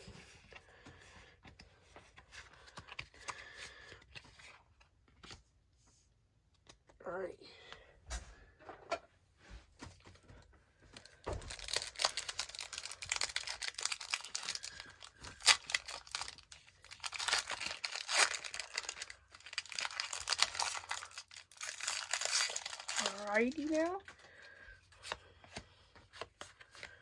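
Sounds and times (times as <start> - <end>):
foil wrapper crinkling: 11.0 - 24.0.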